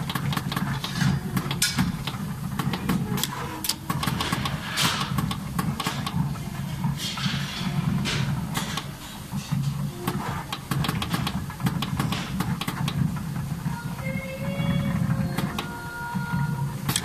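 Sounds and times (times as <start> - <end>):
sharp machine clicks: 0.0 - 6.2, 10.0 - 13.0
machine humming: 0.0 - 17.0.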